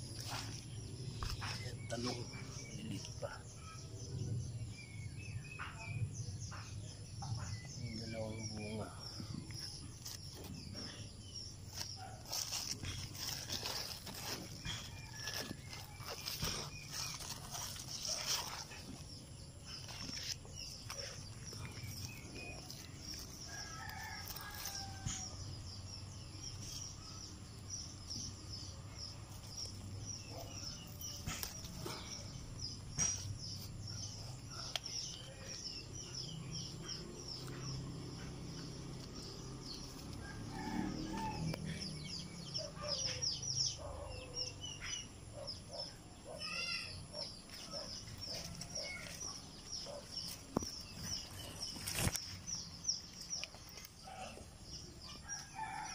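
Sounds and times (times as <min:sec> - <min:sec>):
small birds chirping: 0:00.0 - 0:55.9
rooster crowing: 0:40.2 - 0:41.8.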